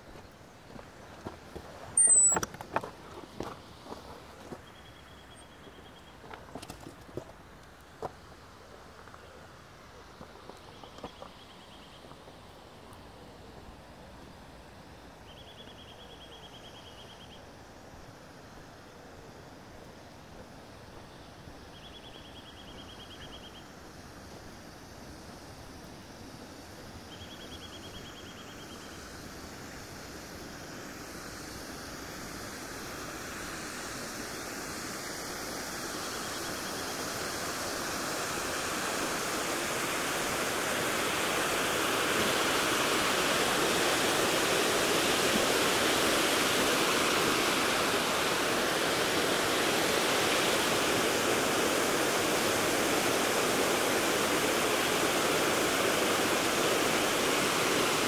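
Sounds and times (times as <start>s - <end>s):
water rushing down stone weir: 35.7s - 58.0s.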